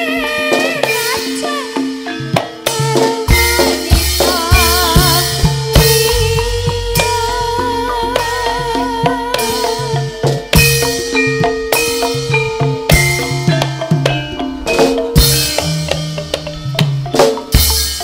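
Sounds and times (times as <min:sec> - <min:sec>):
woman singing: 0:00.0 - 0:10.6
hand drum strokes: 0:00.0 - 0:18.0
ringing bronze metallophones: 0:00.0 - 0:18.0.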